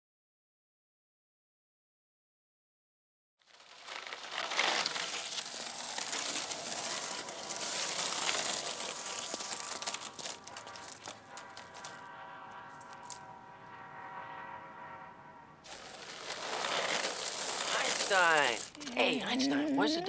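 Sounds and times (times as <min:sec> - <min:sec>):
skateboard wheels on wet asphalt: 0:03.4 - 0:13.9, 0:15.6 - 0:18.8.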